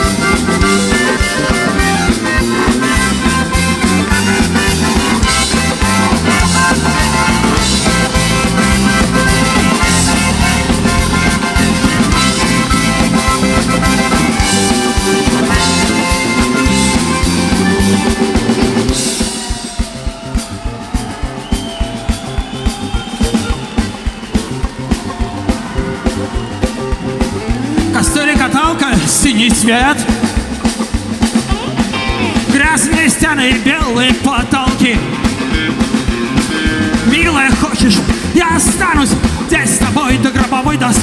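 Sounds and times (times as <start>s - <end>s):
button accordion: 0.0s - 32.9s
drum hits: 0.0s - 41.0s
rock band playing: 0.0s - 41.0s.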